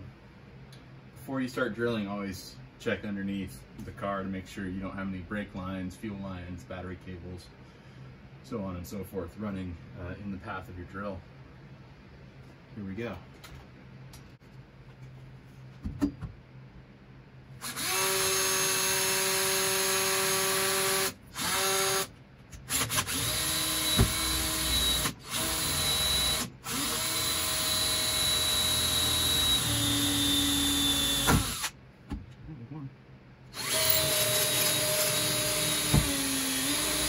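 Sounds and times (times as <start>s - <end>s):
power drill boring through metal: 17.6s - 22.1s, 22.7s - 31.7s, 33.6s - 37.0s.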